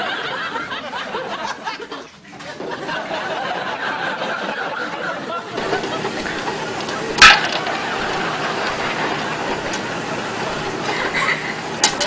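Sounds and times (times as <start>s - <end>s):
oil sizzling: 5.6s - 12.0s
popcorn popping: 5.6s - 12.0s.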